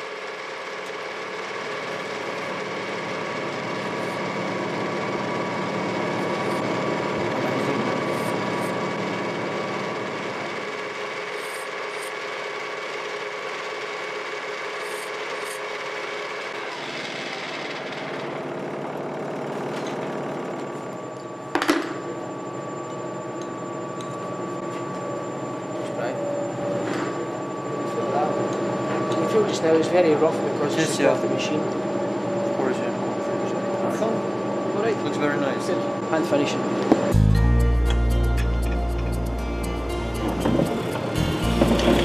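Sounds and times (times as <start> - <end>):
lathe tool shaving wood: 0.0 - 20.2, 38.9 - 42.0
machine whine: 0.0 - 42.0.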